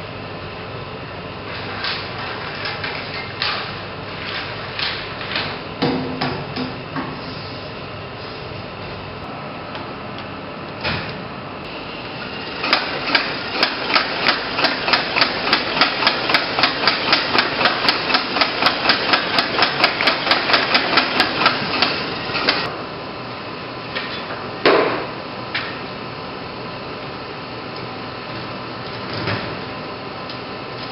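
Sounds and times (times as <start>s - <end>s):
machine room hum: 0.0s - 30.9s
film projector clicking: 12.4s - 22.7s.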